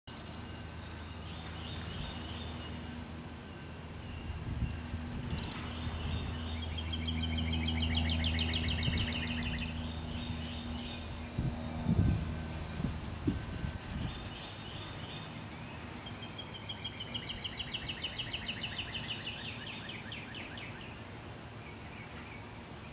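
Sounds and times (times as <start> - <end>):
bird trill: 0.1 - 21.0
steady low hum: 0.1 - 22.9
sharp high bird chirp: 1.7 - 12.0.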